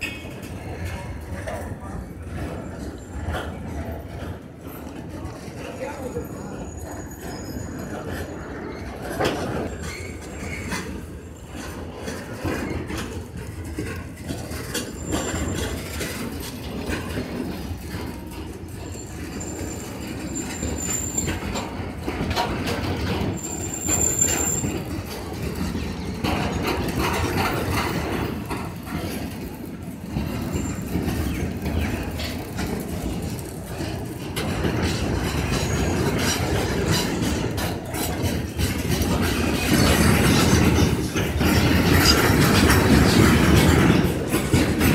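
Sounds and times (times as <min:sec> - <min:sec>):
train wheels clattering over rail joints: 0:00.0 - 0:44.9
high wheel squeals: 0:05.6 - 0:11.7, 0:13.8 - 0:16.6, 0:18.7 - 0:29.2, 0:30.0 - 0:34.0, 0:34.6 - 0:40.0.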